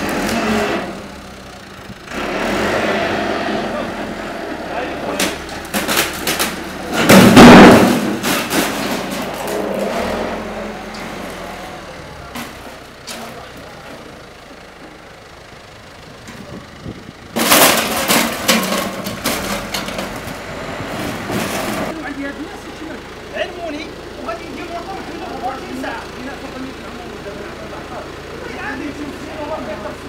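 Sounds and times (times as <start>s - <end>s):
loud crash and scraping: 0.0s - 1.2s, 2.1s - 11.7s, 17.4s - 22.0s
backhoe engine running: 0.0s - 30.0s
clattering and cracking: 5.1s - 10.0s, 17.4s - 20.4s.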